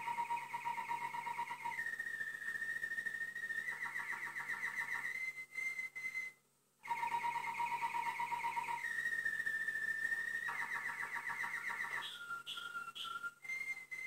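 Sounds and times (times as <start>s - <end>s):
high warbling whistle tone: 0.0s - 14.0s.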